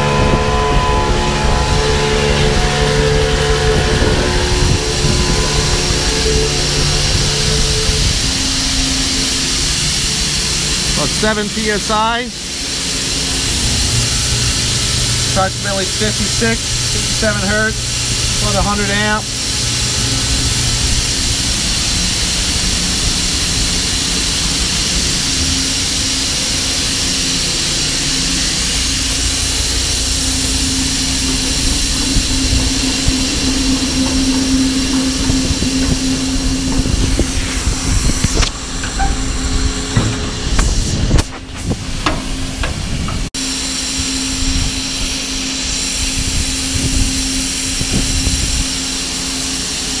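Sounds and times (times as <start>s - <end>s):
pneumatic conveyor blower hissing: 0.0s - 50.0s
knocks and bumps: 34.3s - 43.3s.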